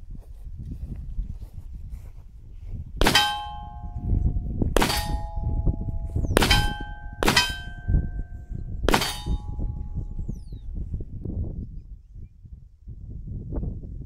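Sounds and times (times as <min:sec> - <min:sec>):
pistol shots: 0:03.0 - 0:04.0, 0:04.8 - 0:08.2, 0:08.9 - 0:09.6
metallic ring of steel plate: 0:03.0 - 0:10.5.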